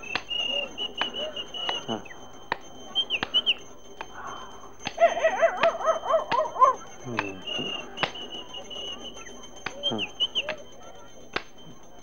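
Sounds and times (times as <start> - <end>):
small birds chirping: 0.0 - 12.0
dog yelping: 2.7 - 11.2.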